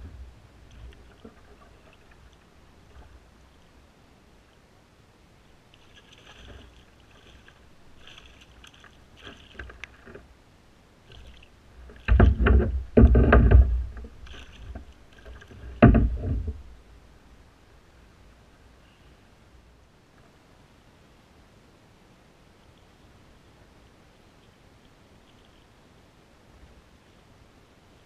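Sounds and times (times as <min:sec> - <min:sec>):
fish splashing and thrashing: 0:05.7 - 0:10.3, 0:11.1 - 0:16.6.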